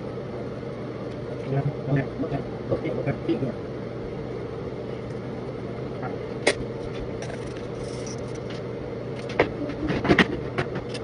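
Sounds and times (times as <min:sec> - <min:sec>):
electric motor hum: 0:00.0 - 0:11.0.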